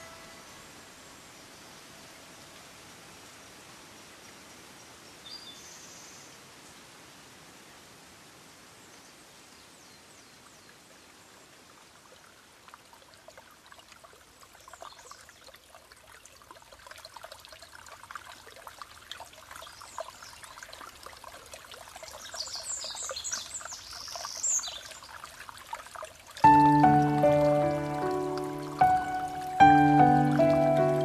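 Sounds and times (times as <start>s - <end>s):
water trickling: 10.2s - 31.0s.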